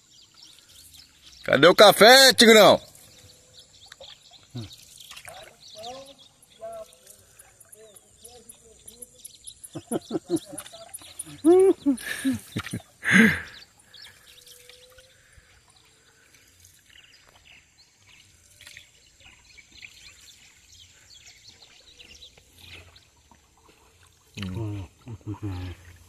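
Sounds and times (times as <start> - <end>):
faint birds calling: 0.0 - 26.0
water trickling and dripping: 0.0 - 26.0
small water splashes: 2.5 - 26.0
loud vocal call: 11.3 - 13.6.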